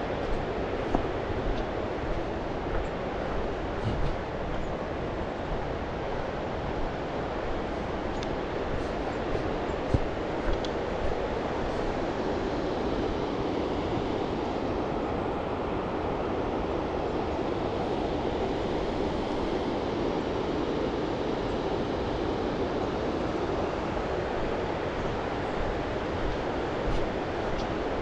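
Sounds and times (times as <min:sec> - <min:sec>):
river rushing: 0:00.0 - 0:14.1.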